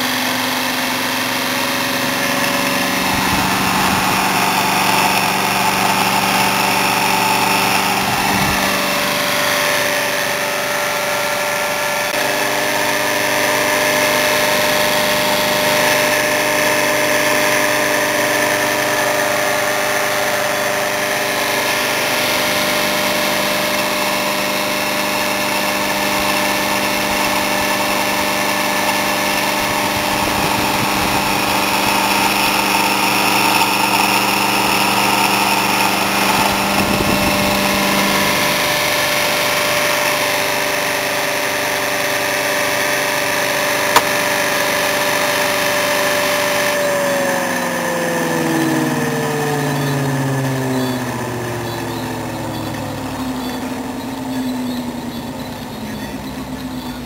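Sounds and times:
motor humming: 0.0 - 57.0.

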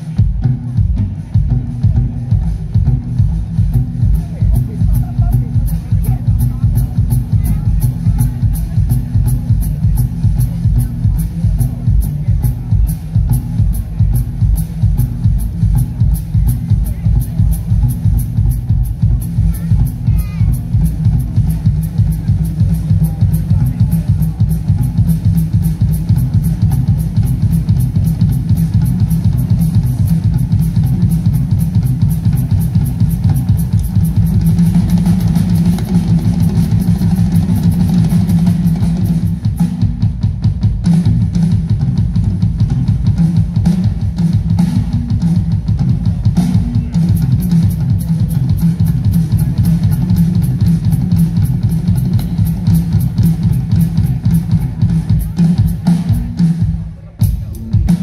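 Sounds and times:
live rock band playing: 0.0 - 58.0
cymbal ticking: 14.6 - 39.5.

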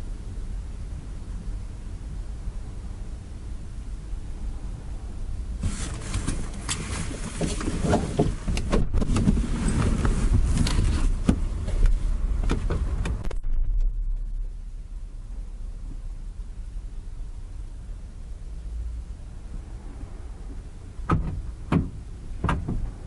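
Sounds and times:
low cabin rumble: 0.0 - 23.0
rustling and seat knocks: 5.6 - 13.2, 21.1 - 23.0
car door shutting: 5.6 - 13.8, 21.0 - 23.0.

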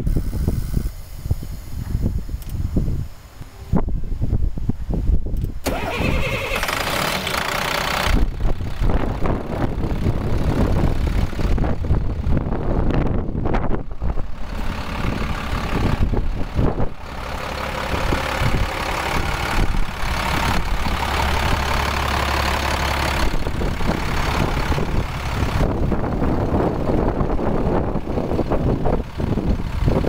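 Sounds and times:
diesel engine idling: 5.6 - 30.0.

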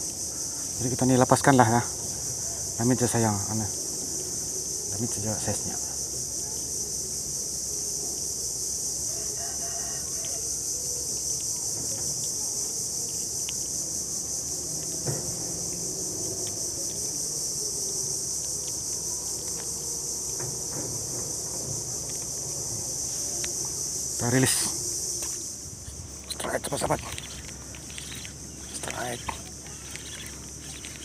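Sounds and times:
high-pitched insect chorus: 0.0 - 31.0
distant rooster crowing: 2.2 - 2.8, 8.7 - 11.9.

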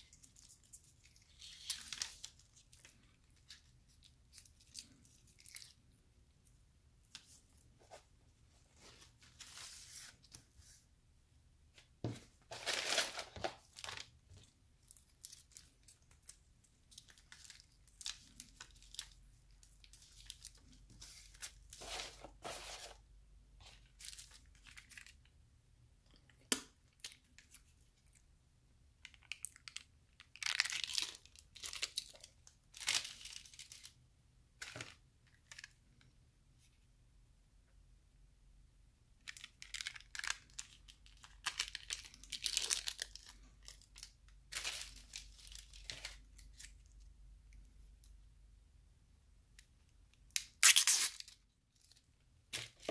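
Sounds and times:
paper wrappers crinkling: 12.5 - 23.0, 39.3 - 46.9
packets tearing open: 50.3 - 51.4.

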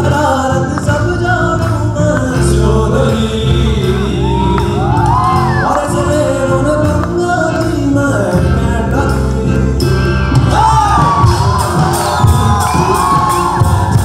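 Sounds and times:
drums: 0.0 - 14.0
person singing: 0.0 - 14.0.

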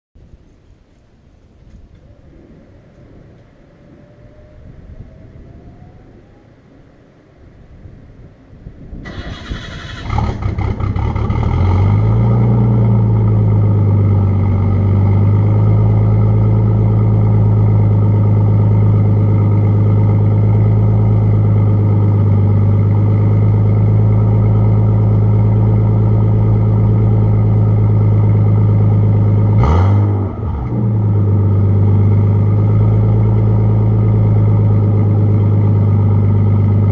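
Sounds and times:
car engine idling: 9.1 - 36.9.

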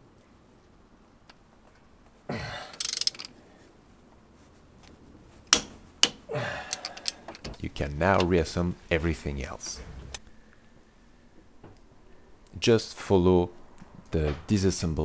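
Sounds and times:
wrench groaning under load: 2.4 - 3.4, 6.0 - 7.6
ratchet clicks: 2.7 - 3.3.

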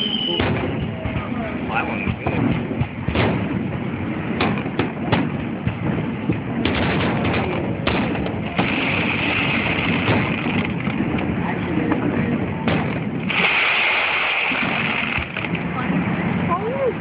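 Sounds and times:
fireworks bursting: 0.0 - 17.0
low rumble and crackle: 0.0 - 17.0
steady high hiss: 13.2 - 15.4.

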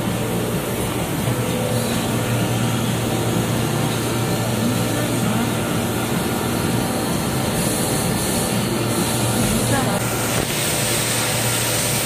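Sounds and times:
factory machinery drone: 0.0 - 12.0.

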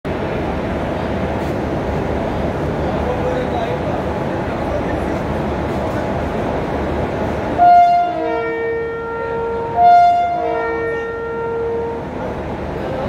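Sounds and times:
train horn blasts: 7.6 - 12.4.

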